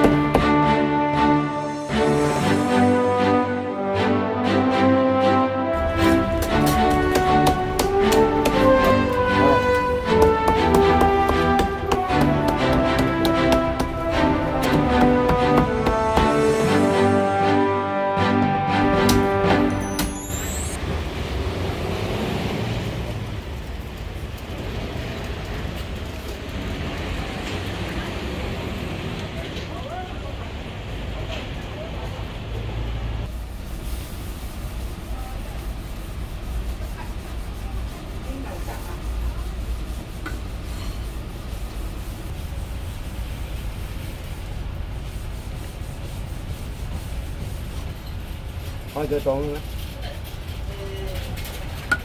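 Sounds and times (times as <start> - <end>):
road traffic noise: 0.0 - 52.0
cleaver knocking on chopping block: 7.0 - 9.0, 10.2 - 14.0.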